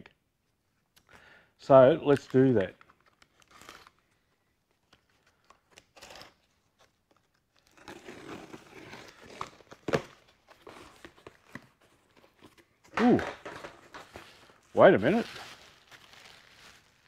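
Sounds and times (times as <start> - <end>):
blade slitting packing tape: 5.5 - 10.1.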